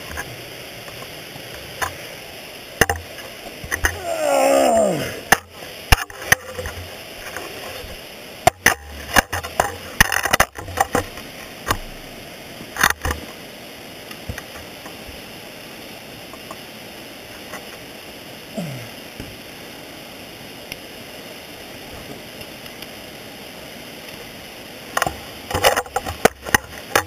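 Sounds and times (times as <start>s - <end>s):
person groaning: 3.9s - 5.3s, 18.5s - 19.0s.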